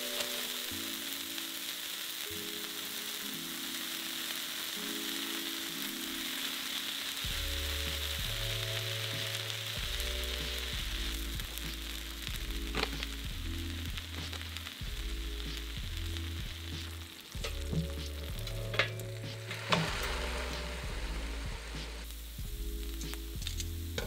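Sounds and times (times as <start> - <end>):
cheese sizzling on a grill: 0.0 - 24.0
soft background music: 0.0 - 24.0
low bass line: 9.8 - 24.0.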